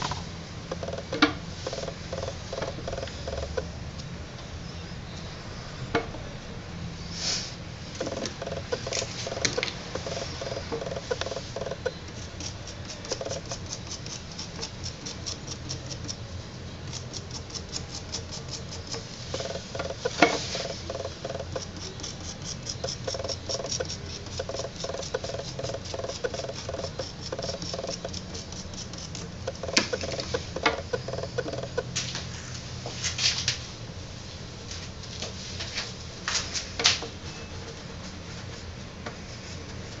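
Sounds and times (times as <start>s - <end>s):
tool scraping clay: 8.0s - 31.9s.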